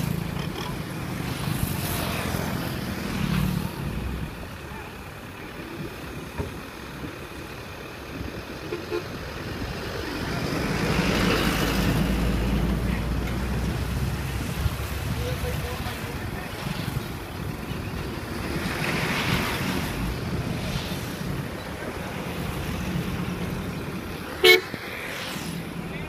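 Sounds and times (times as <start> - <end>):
tractor diesel engine running: 0.0 - 24.7.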